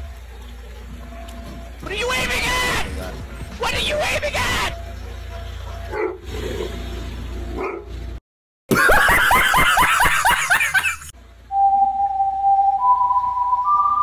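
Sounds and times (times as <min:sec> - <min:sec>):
steady whistle-like tone: 0:11.5 - 0:14.0.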